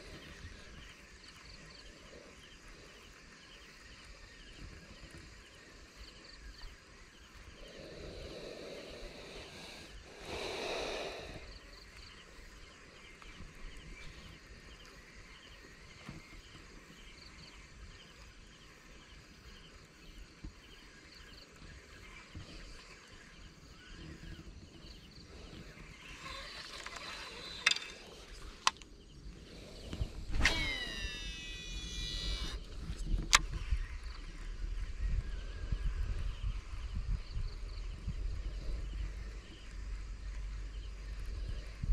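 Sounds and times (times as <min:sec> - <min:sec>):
sharp clicks: 0:26.2 - 0:28.9, 0:29.9 - 0:33.6
brief falling squeals: 0:30.4 - 0:32.6.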